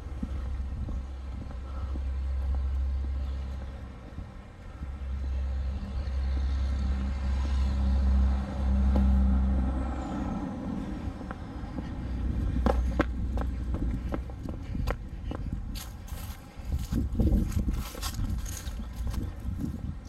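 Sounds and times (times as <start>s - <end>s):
footsteps on concrete steps: 0.0s - 6.8s, 10.8s - 19.9s
faint hum: 0.0s - 20.0s
heavy low rumble: 0.0s - 20.0s.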